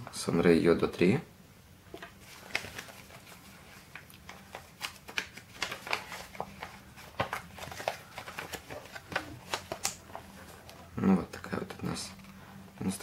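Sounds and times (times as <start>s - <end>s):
paper crinkling: 2.0s - 10.9s.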